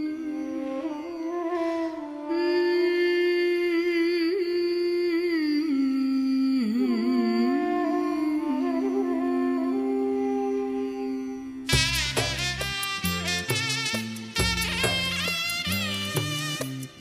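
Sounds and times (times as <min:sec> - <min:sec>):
woman humming: 0:00.0 - 0:11.8.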